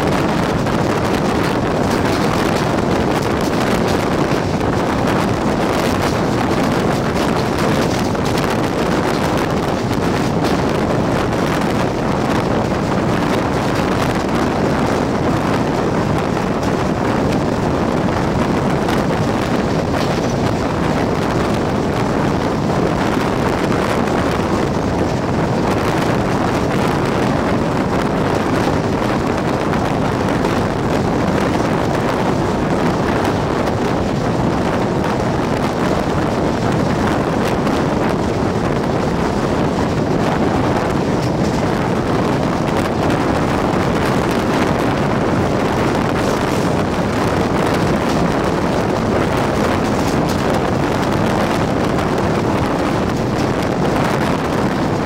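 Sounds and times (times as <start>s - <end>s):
train running noise: 0.0s - 55.0s
wind buffeting microphone: 0.0s - 55.0s.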